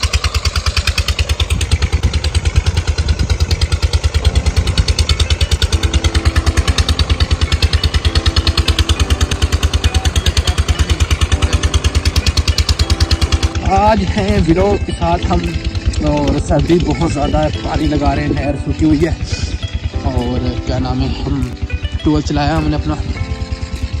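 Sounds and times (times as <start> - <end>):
pump engine chugging: 0.0 - 24.0.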